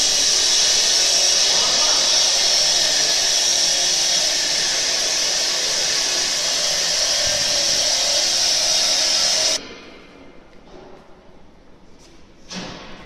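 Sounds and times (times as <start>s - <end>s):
generator hissing air and gas: 0.0s - 9.6s.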